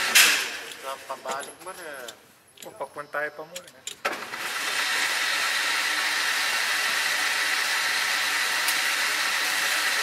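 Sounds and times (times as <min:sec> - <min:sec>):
electric motor whining: 0:04.2 - 0:10.0.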